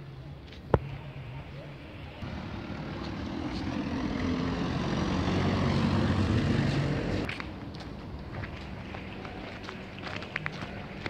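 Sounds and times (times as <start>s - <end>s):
vehicle engine passing by: 2.2s - 7.3s.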